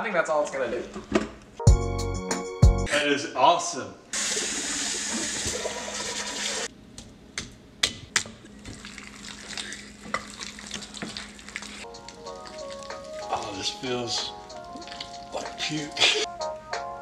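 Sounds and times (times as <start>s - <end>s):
hands rubbing chicken in crumbs: 9.0s - 15.3s.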